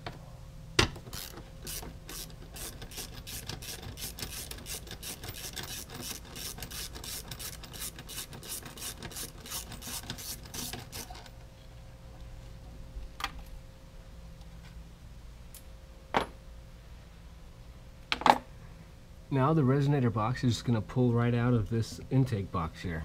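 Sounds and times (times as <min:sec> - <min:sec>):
socket ratchet clicking: 0:01.0 - 0:11.1.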